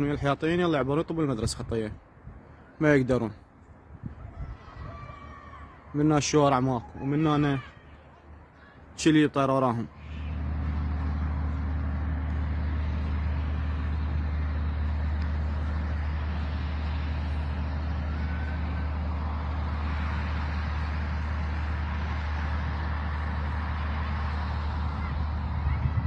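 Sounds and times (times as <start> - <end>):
street noise hiss: 0.0 - 26.0
vehicle engine rumbling: 9.6 - 26.0.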